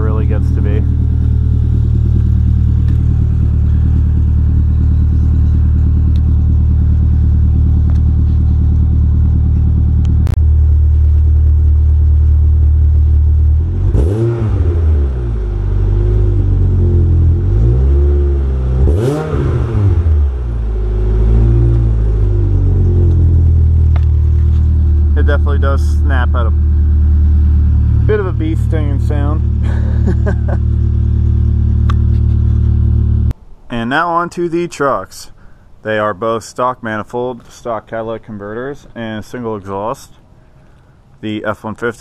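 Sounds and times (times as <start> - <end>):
car engine idling: 0.0 - 33.4
engine revving in throttle blips: 0.0 - 33.4.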